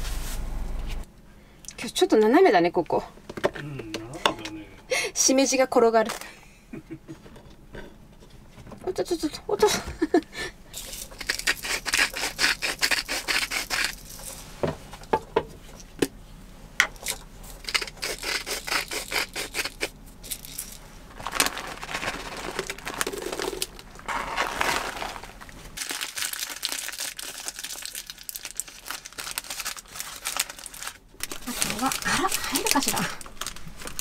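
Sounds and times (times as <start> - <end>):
seasoning shaker rattling: 10.7 - 14.4, 17.0 - 20.8, 21.5 - 25.4
plastic bag crinkling: 20.3 - 34.0
parchment paper rustling: 21.1 - 26.1, 27.5 - 34.0.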